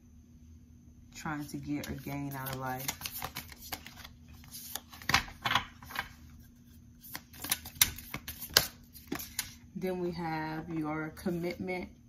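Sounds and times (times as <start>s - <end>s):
cards being shuffled: 1.4s - 6.2s, 7.0s - 9.6s.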